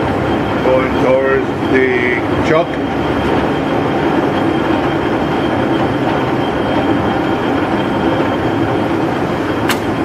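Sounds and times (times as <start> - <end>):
lathe running with high whine: 0.0 - 10.0.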